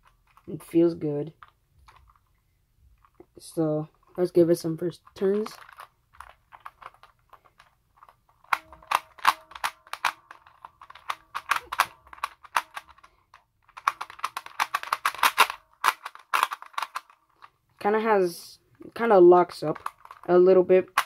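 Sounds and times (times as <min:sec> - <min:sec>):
small plastic clicks of turning dials: 0:05.0 - 0:17.6.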